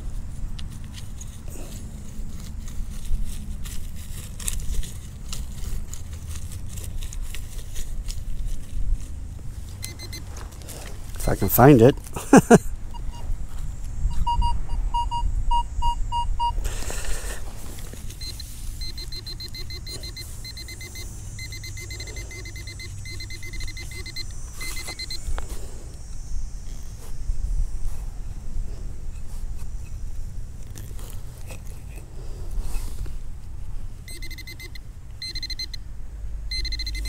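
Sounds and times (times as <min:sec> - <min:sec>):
metal detector beeping: 0:09.7 - 0:13.3, 0:14.1 - 0:16.6, 0:18.1 - 0:25.5, 0:34.0 - 0:35.8, 0:36.5 - 0:37.0
low wind rumble: 0:12.6 - 0:18.8.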